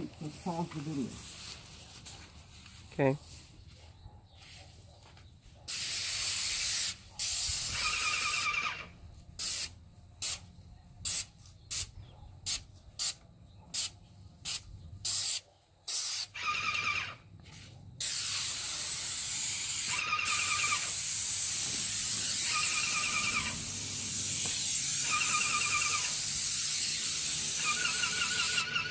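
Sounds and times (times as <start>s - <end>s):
paint sprayer hissing: 5.7s - 8.4s, 9.4s - 11.9s, 12.5s - 16.4s, 17.5s - 28.9s.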